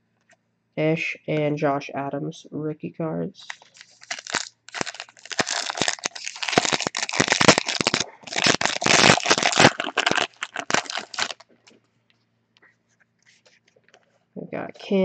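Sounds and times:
card pack wrapper crinkling: 0:03.4 - 0:11.4.

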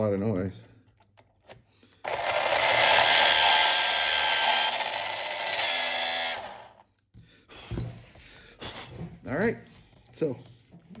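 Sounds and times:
electric motor whine: 0:02.1 - 0:06.8.

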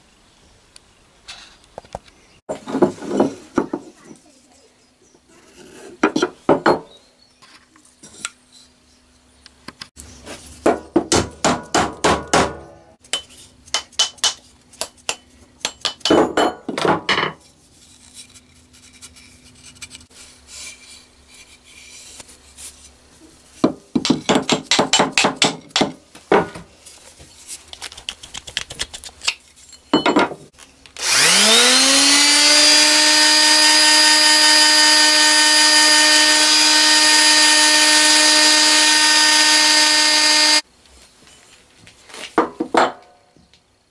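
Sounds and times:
electric sander sanding wood: 0:31.0 - 0:40.6.

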